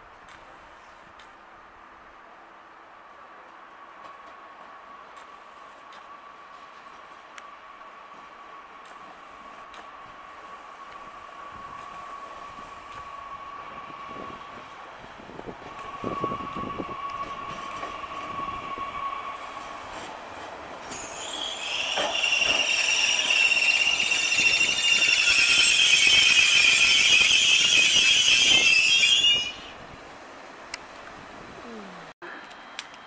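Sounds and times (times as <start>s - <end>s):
train running on rails: 0.0s - 31.6s, 32.3s - 33.0s
metallic wheel squeal: 20.9s - 29.7s.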